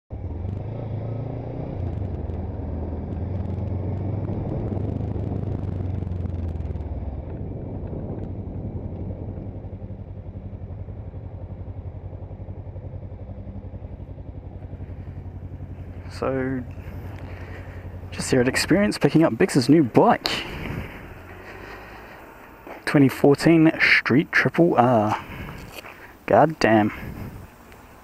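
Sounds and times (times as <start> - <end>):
motorcycle engine at low revs: 0.1 - 28.0
wind noise: 1.8 - 11.0, 16.0 - 21.7, 25.0 - 25.9, 26.6 - 27.9.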